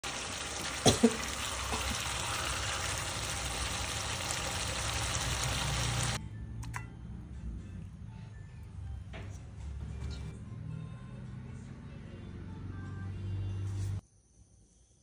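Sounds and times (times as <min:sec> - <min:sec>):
chicken sizzling in a pan: 0:00.0 - 0:06.2.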